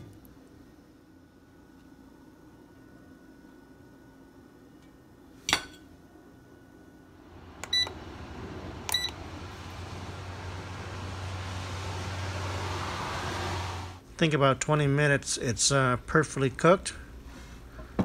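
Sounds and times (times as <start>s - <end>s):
air fryer fan humming: 0.0s - 18.0s
short beeps: 8.9s - 9.2s.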